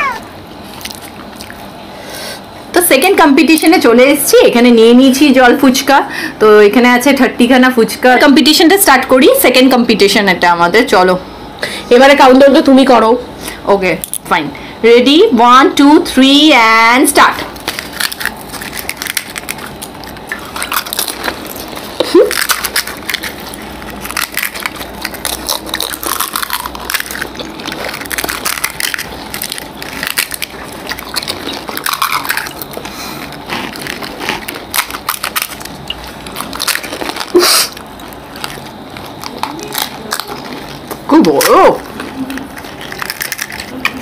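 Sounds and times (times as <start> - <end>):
crunching and chewing: 0.0 - 2.6, 17.4 - 44.0.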